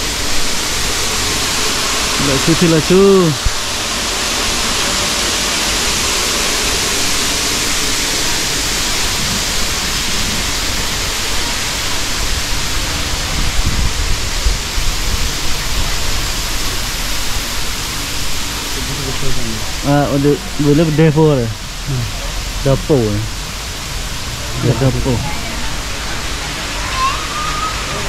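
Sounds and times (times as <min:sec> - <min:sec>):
waterfall rushing: 0:00.0 - 0:28.0
wind buffeting microphone: 0:12.2 - 0:19.8.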